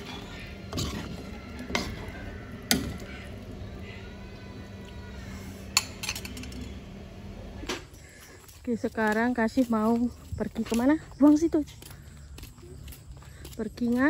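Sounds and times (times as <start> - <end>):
stove hum and simmering hiss: 0.0 - 8.3.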